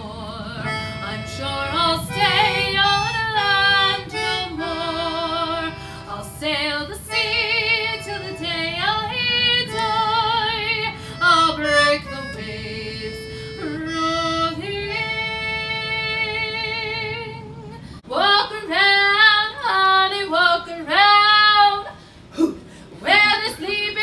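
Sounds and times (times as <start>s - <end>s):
concertina chords: 0.0s - 17.8s
woman singing: 0.0s - 22.0s, 23.0s - 24.0s.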